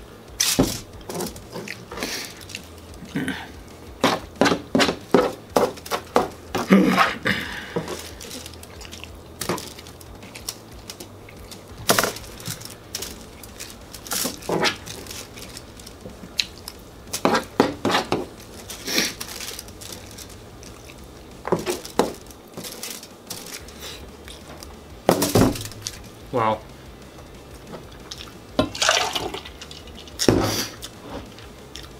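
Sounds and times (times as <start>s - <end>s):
fork scraping aluminium foil: 11.9s - 16.0s, 16.6s - 21.0s, 21.6s - 24.1s.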